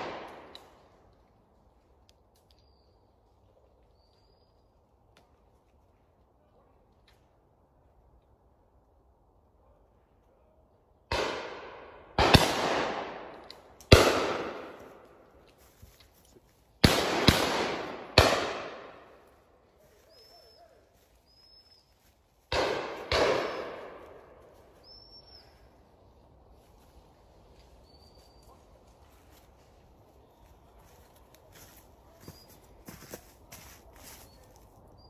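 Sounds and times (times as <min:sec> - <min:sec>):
shotgun shots: 0:00.0 - 0:00.5, 0:11.1 - 0:15.0, 0:16.8 - 0:19.1, 0:22.5 - 0:24.2.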